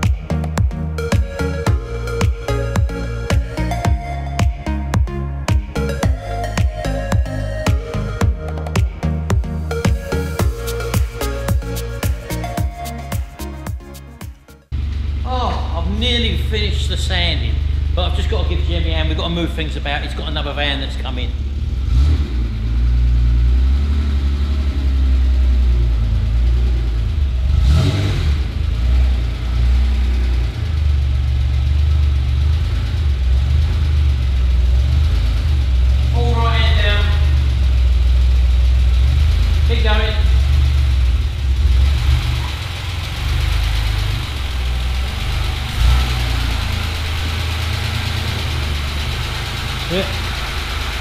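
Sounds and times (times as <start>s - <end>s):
car engine running at low revs: 14.5s - 51.0s.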